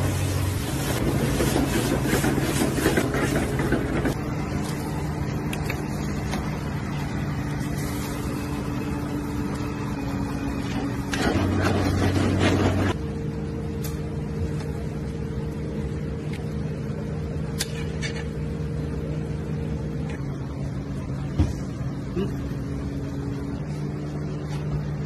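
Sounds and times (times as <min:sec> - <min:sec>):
low machine hum with hiss: 0:00.0 - 0:25.0
crackly sizzling: 0:07.4 - 0:09.6.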